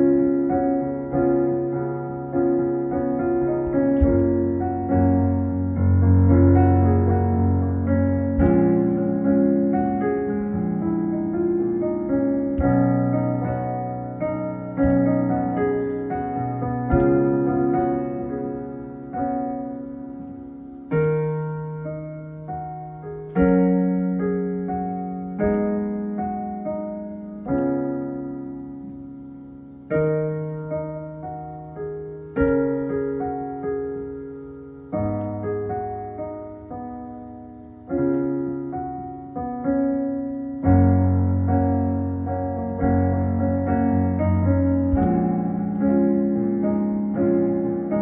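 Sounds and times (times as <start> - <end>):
electric piano chords: 0.0 - 48.0
deep bass notes: 2.9 - 18.8, 42.7 - 47.1.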